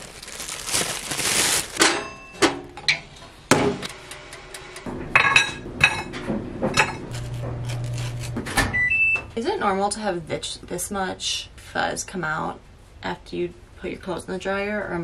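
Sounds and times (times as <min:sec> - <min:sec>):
plastic bag rustling: 0:00.0 - 0:01.8.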